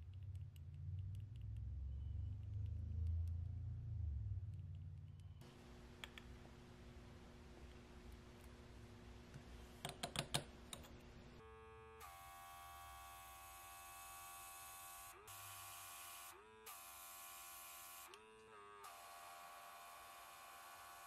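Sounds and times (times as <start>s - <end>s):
compressor motor hum: 10.5s - 21.0s.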